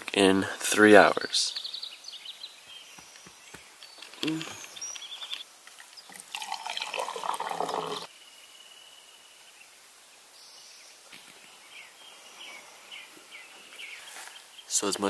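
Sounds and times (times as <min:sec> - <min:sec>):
liquid pouring into a cup: 0:06.1 - 0:08.1.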